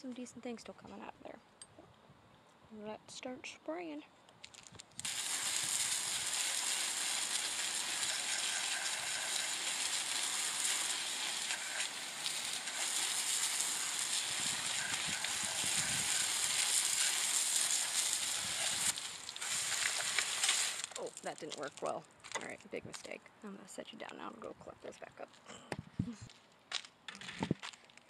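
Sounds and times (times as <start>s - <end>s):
water spattering on rocks: 4.6s - 22.4s
hose nozzle spraying water: 5.0s - 22.0s.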